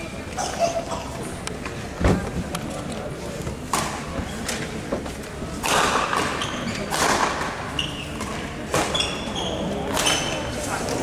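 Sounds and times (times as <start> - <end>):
racket hitting shuttlecock: 5.6 - 7.6.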